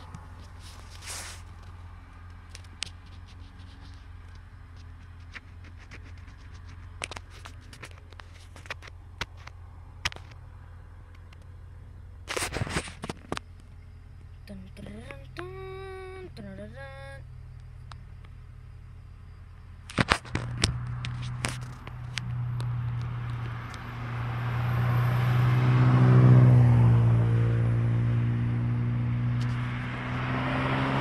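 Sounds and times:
low car cabin hum: 0.0 - 31.0.

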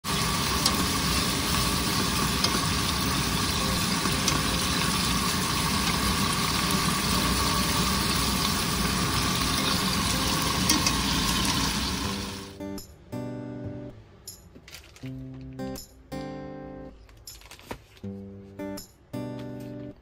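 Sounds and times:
beef and onions sizzling in a pan: 0.0 - 12.6
steady mechanical hum: 0.1 - 12.6.

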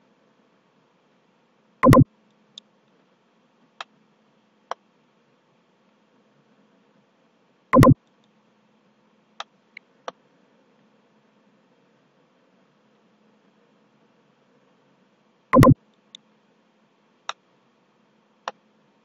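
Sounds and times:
faint steady hum: 0.0 - 19.0
mouse button clicks: 1.8 - 2.0, 7.8 - 8.0, 15.6 - 15.8.

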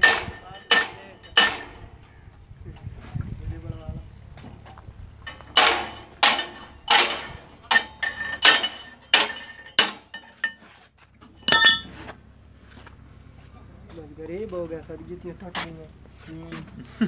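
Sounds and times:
hammer striking steel: 0.0 - 2.0, 5.3 - 10.6, 11.4 - 11.9.

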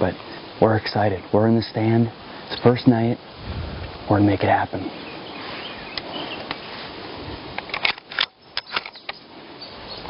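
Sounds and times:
outdoor hiss: 0.0 - 10.0
rifle clicks and knocks: 7.6 - 9.2.

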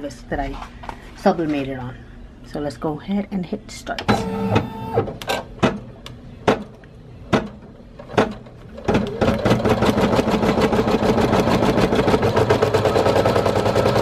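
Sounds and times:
machine knocks: 7.3 - 9.0
embroidery machine sewing: 8.2 - 14.0.

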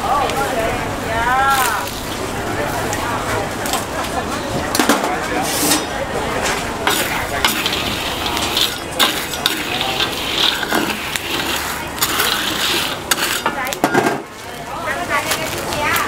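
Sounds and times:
metal ladle clicking on metal: 6.8 - 14.0
salt grains rattling in wok: 6.8 - 16.0.

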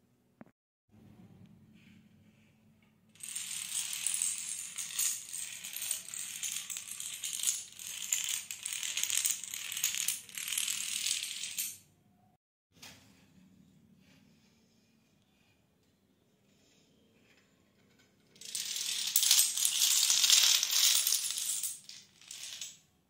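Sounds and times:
toy dominoes toppling clatter: 3.2 - 11.8, 18.4 - 22.8.

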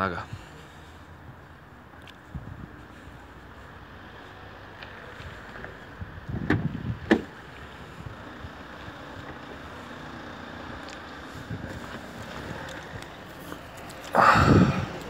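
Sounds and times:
car door latch clunks: 6.4 - 7.3.

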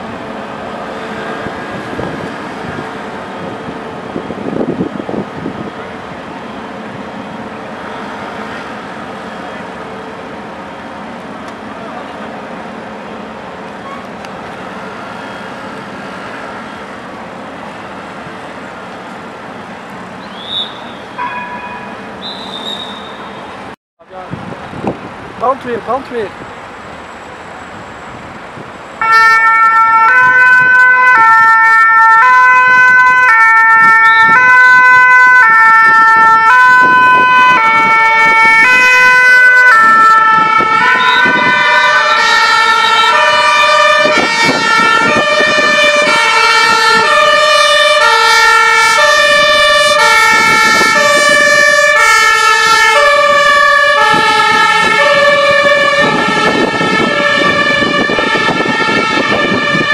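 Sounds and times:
two-tone emergency siren: 0.0 - 9.8, 20.3 - 23.5, 29.0 - 59.9
second siren: 20.3 - 23.5, 29.0 - 59.9.

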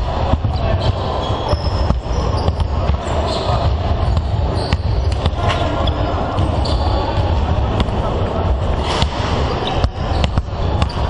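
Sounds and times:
background din of sports hall: 0.0 - 11.0
basketballs bouncing on hardwood: 0.3 - 5.4, 9.8 - 11.0.

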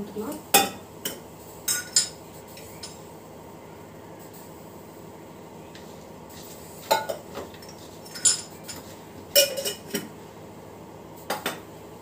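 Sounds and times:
bowl and utensils clinking: 0.6 - 3.0, 6.9 - 10.1.

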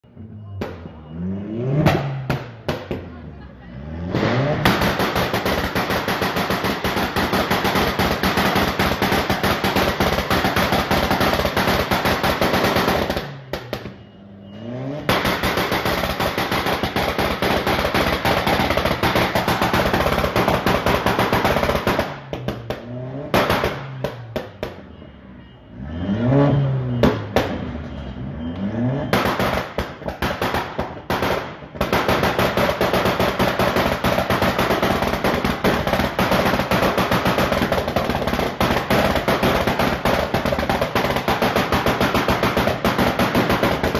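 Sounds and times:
car engine revving hard: 3.8 - 5.0
exhaust crackling bangs: 4.1 - 14.0.

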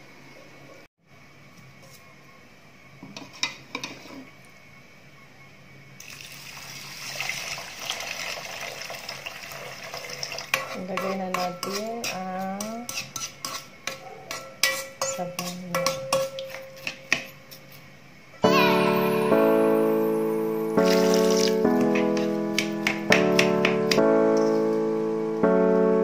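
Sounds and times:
spoon knocking against metal pot: 10.5 - 17.3, 21.8 - 24.1.

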